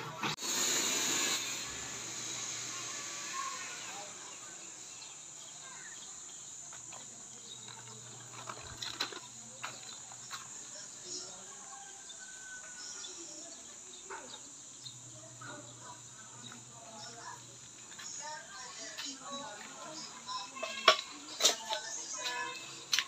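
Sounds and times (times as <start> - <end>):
high-pitched insect drone: 0.6 - 9.5.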